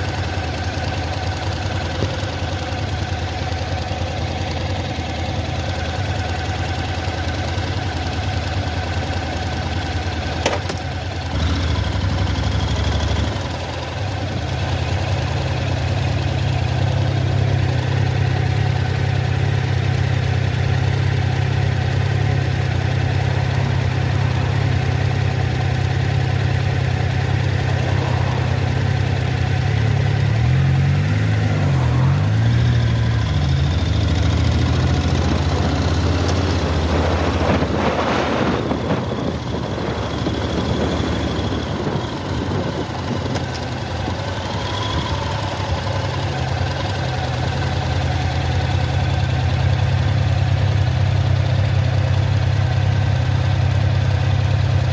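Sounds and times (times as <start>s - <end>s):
motorcycle engine: 0.0s - 54.9s.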